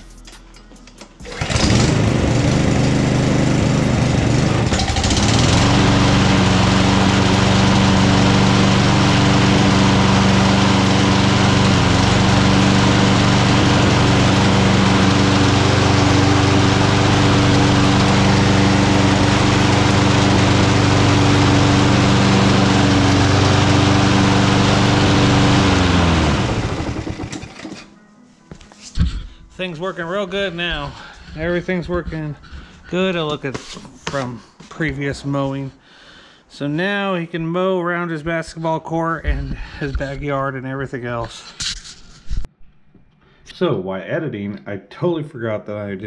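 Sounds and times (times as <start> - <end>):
lawn mower engine running: 1.0 - 27.9.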